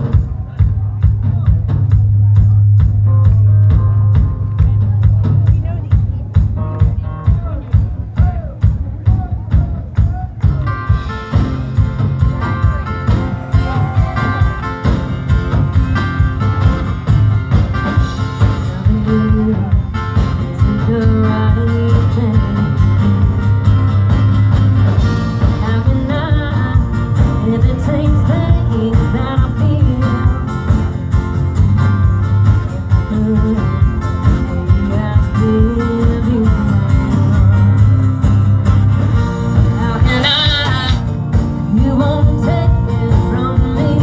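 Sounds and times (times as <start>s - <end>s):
drum kit beat: 0.0s - 44.0s
live country band through pa: 0.0s - 44.0s.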